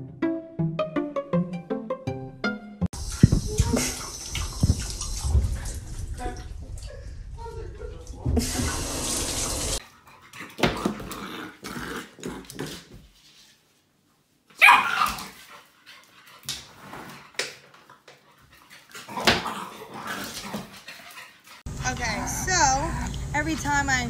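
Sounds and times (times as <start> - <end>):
shower tap running: 3.0 - 6.2, 8.4 - 9.8
dog barking: 14.6 - 15.2.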